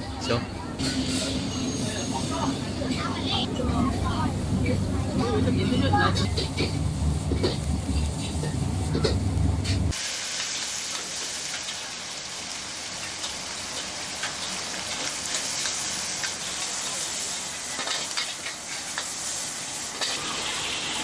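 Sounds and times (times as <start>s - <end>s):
gas burner rumble: 0.0s - 21.0s
noodles sizzling in a wok: 4.0s - 21.0s
spatula scraping a wok: 6.1s - 10.0s.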